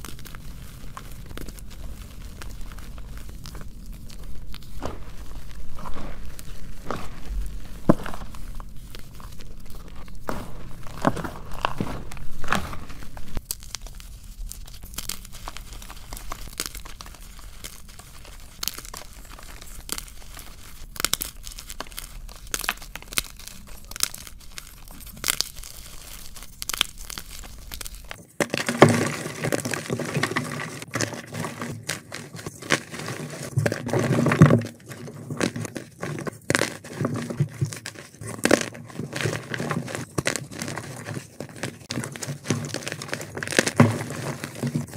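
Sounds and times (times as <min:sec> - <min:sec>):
chalk crunching in hands: 0:00.0 - 0:28.3.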